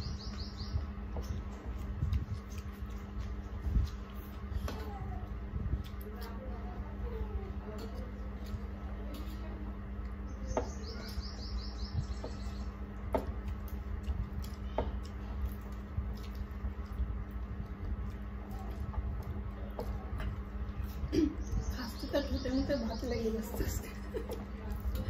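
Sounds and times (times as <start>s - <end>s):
low hum: 0.0s - 25.0s
mouth clicks and chewing: 1.2s - 6.6s, 13.2s - 21.2s.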